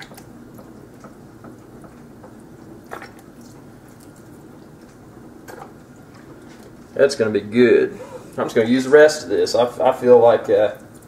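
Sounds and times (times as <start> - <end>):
marinade dripping onto food: 0.0 - 6.9.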